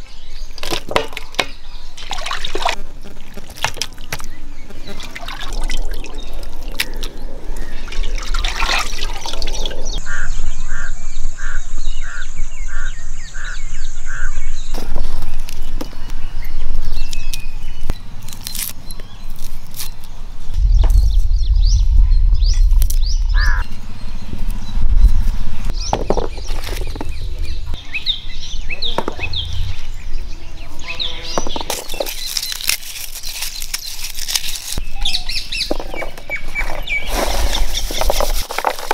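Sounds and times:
water splashing and trickling: 0.6s - 10.0s
wind rumble on microphone: 20.4s - 30.5s.

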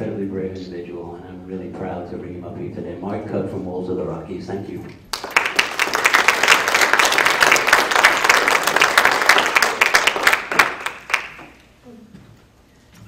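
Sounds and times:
audience applause: 5.1s - 11.6s.

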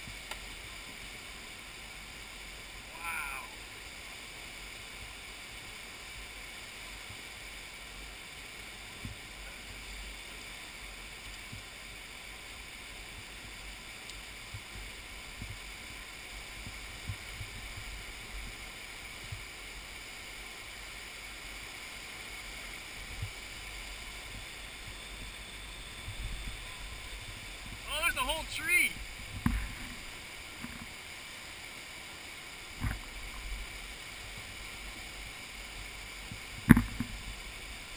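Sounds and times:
flood water rushing through gorge: 1.3s - 7.0s.

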